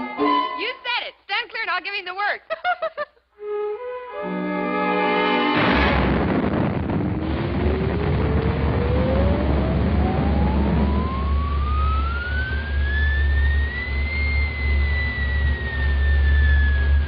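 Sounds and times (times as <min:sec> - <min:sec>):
cartoon whistle rising in pitch: 0:00.0 - 0:00.7
low hum: 0:05.6 - 0:17.0.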